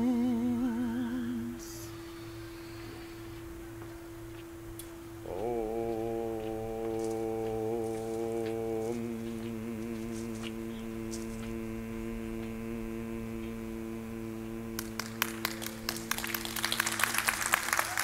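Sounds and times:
people clapping: 14.8 - 18.0.

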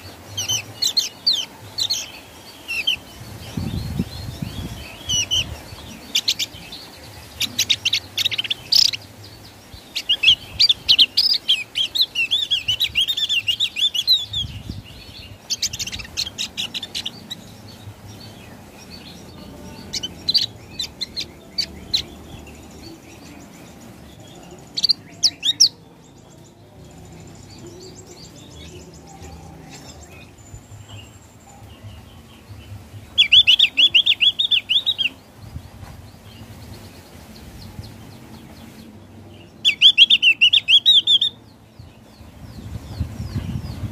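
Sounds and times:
bird singing rapid chirps: 0.0 - 43.9.

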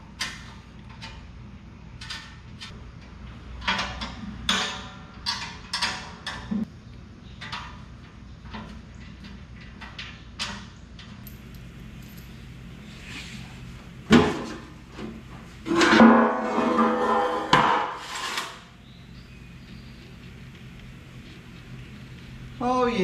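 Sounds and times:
metallic clinks of hand tools: 11.2 - 12.5
low steady hum: 11.2 - 17.7, 18.6 - 23.0.

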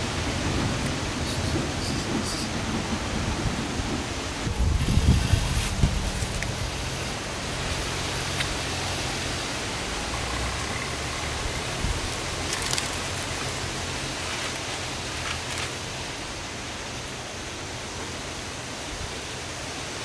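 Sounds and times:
steady background hiss: 0.0 - 20.0.

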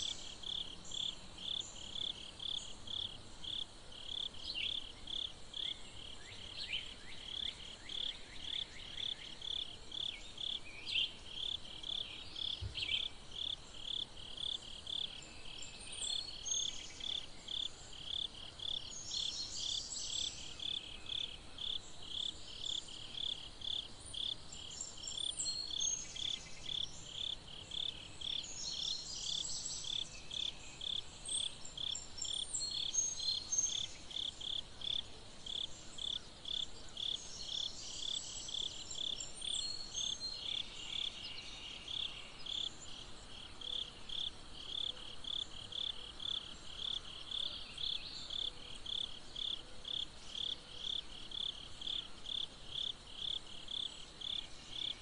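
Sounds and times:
insects chirping: 0.0 - 55.0.

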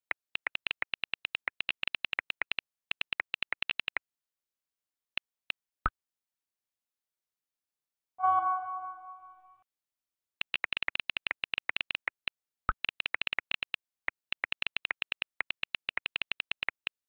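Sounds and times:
phone keyboard clicks: 0.0 - 4.0, 10.4 - 17.0
message chime: 8.2 - 9.6.

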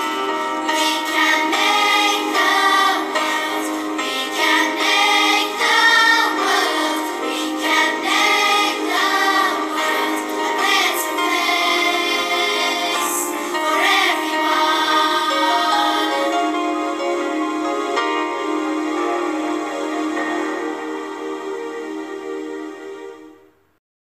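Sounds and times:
children's choir singing: 0.0 - 23.5.

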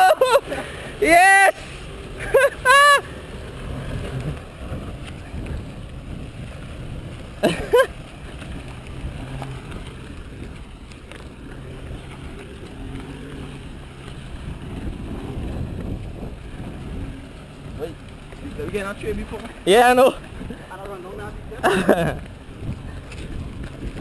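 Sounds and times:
truck engine at low revs: 0.0 - 24.0
person whooping shout: 1.0 - 1.6, 2.6 - 3.0.

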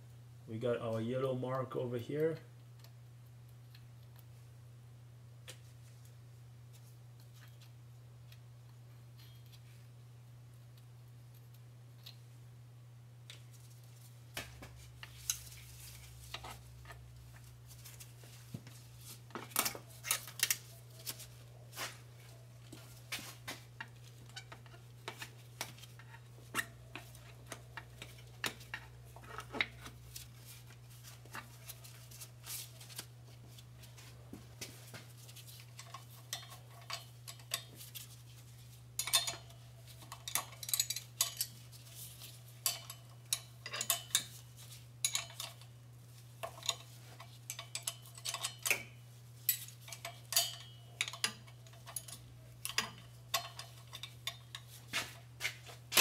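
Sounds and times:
hand tools clinking against metal: 39.0 - 41.6, 42.2 - 44.4, 45.0 - 45.6, 46.4 - 55.6.

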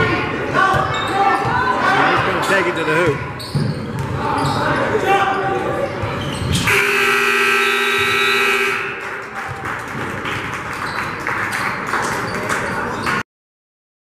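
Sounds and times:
crowd noise: 0.0 - 13.2
scoreboard buzzer blast: 6.7 - 9.0.

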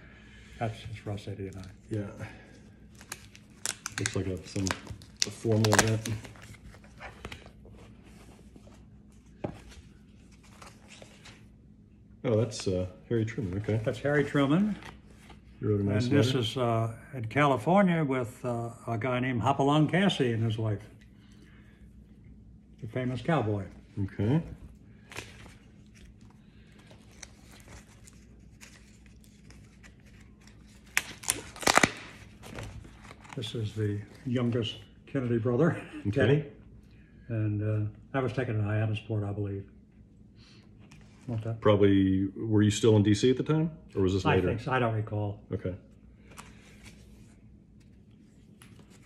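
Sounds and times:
plastic photo sleeves rustling: 1.0 - 11.5, 13.3 - 15.6, 24.9 - 34.8, 46.2 - 49.0.

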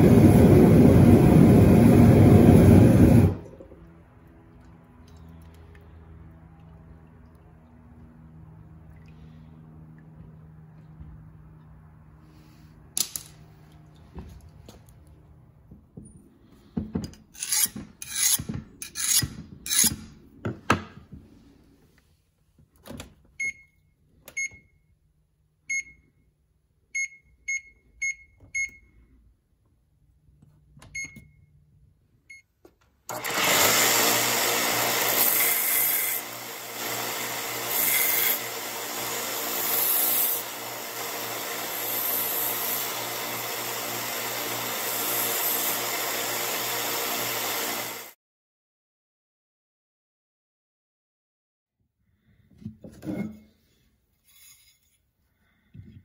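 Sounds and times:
rough scraping: 17.3 - 20.3
oven keypad beeps: 23.4 - 24.8, 25.7 - 26.1, 27.0 - 28.9, 30.8 - 31.5
belt sander grinding metal: 33.1 - 48.1.

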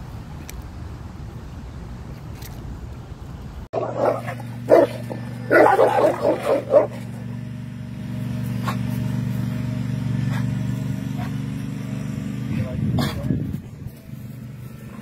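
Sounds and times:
vehicle engine humming: 0.0 - 15.0
dog barking: 3.8 - 7.0, 13.0 - 13.3.

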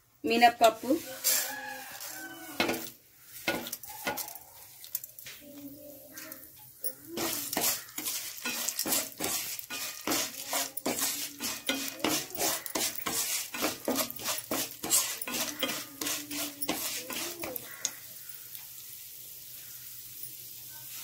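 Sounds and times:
wooden spatula scraping a pan: 0.6 - 4.8, 7.0 - 18.0
dry lentils rattling in pan: 0.8 - 18.4.

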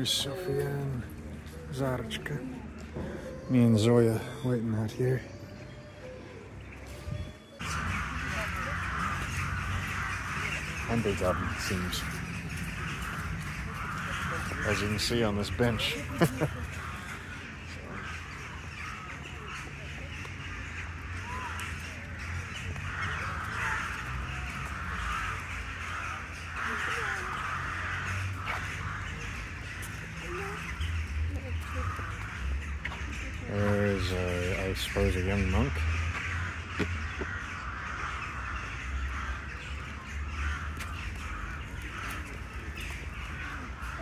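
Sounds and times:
crows cawing: 0.0 - 44.0
steady low rumble: 7.6 - 15.0.

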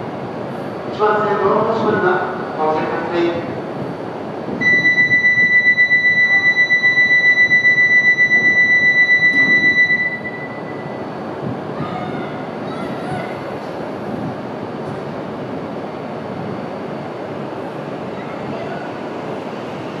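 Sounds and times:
low hum of train: 0.0 - 20.0
pulsing door warning buzzer: 4.6 - 10.7.

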